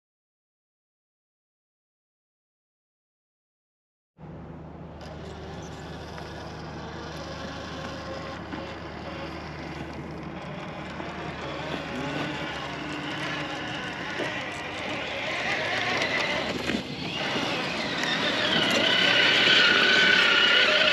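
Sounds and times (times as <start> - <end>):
toy truck electric motor whining: 5.0 - 20.9.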